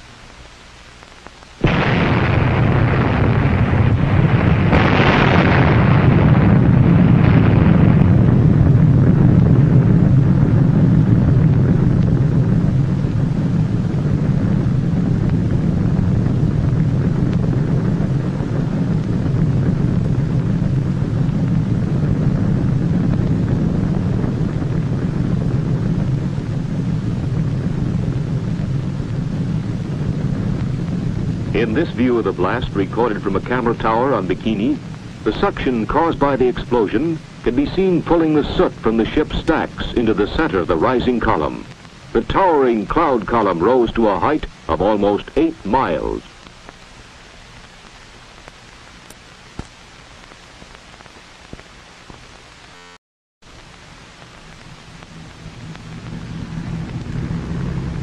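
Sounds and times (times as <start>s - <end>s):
explosion boom: 1.6s - 41.6s
long deep rumble: 1.6s - 42.2s, 53.5s - 58.0s.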